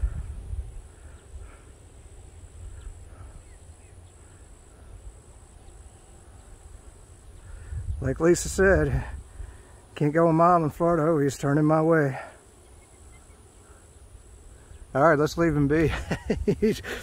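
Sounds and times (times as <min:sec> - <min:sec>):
wind buffeting microphone: 0:00.0 - 0:03.6, 0:06.4 - 0:09.7
high insect buzz: 0:00.0 - 0:17.0.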